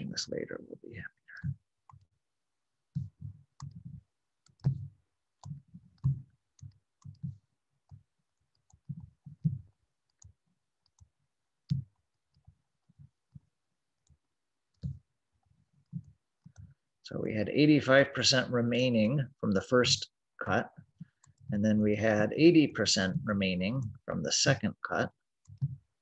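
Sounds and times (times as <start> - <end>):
pen clicks and taps on whiteboard: 2.9 - 14.2, 14.8 - 15.1, 25.5 - 25.9.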